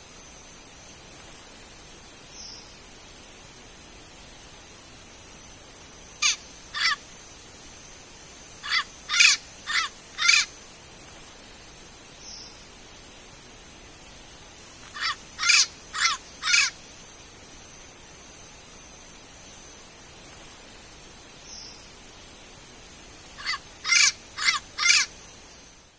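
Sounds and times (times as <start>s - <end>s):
parrot calling loudly: 6.2s - 7.0s, 8.6s - 10.5s, 14.9s - 16.8s, 23.4s - 25.1s.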